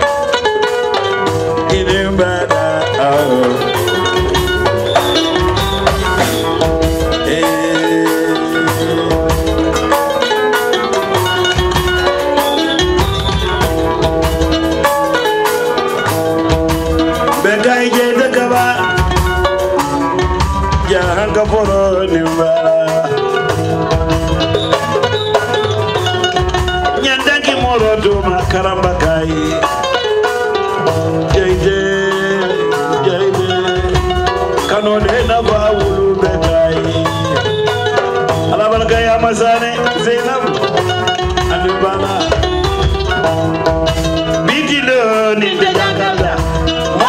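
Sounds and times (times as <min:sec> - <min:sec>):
drum kit groove: 0:00.0 - 0:47.0
electric guitar: 0:00.0 - 0:47.0
kora plucked runs: 0:00.0 - 0:47.0
person singing: 0:01.6 - 0:10.4, 0:17.2 - 0:19.4, 0:20.7 - 0:23.6, 0:27.0 - 0:30.0, 0:31.2 - 0:37.8, 0:38.5 - 0:42.7, 0:44.4 - 0:47.0.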